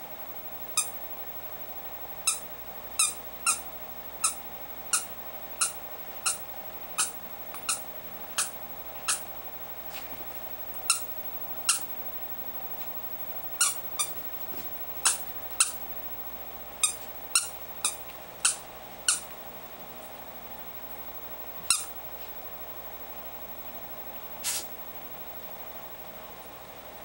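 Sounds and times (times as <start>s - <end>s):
squeaky toy squeaks: 3.0s - 3.6s, 4.2s - 6.4s, 7.0s - 7.8s, 13.6s - 14.2s, 16.8s - 19.3s, 21.7s - 21.9s.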